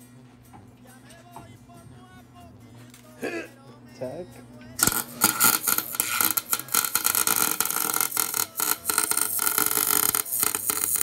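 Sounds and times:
welder arc crackling: 0:04.8 - 0:11.0.

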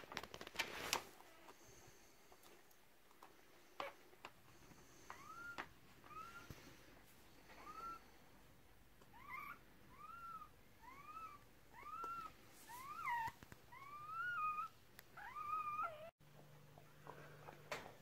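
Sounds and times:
puppy crying: 0:07.5 - 0:08.0, 0:09.1 - 0:16.2.

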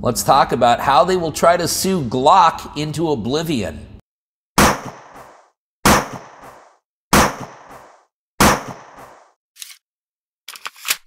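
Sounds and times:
gunshots: 0:04.6 - 0:09.3.

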